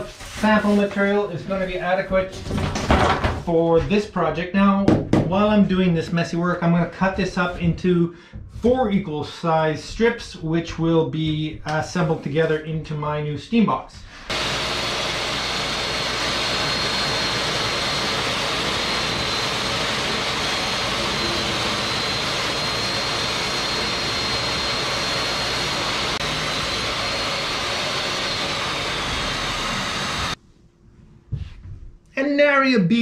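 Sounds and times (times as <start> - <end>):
table saw cutting foam: 14.3 - 30.4.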